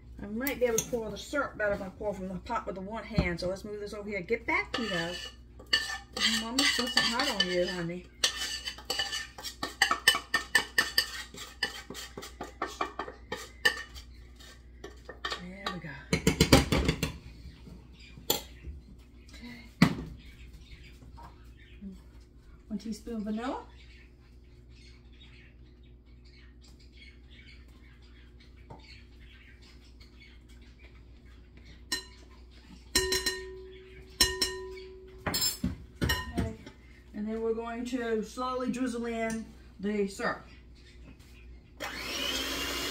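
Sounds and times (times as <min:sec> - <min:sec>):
metal spoon scraping saucepan: 0:04.5 - 0:15.9
faint high chirping: 0:23.8 - 0:35.2
metal clinking on glass bowl: 0:32.9 - 0:36.5.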